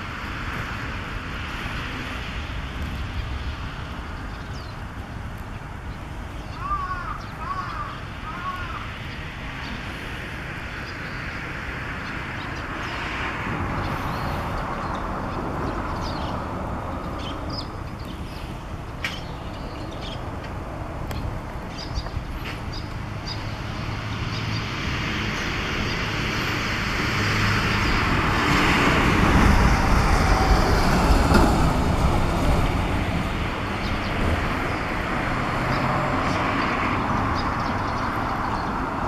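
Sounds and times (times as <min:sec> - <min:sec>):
road traffic rumble: 0:00.0 - 0:39.0.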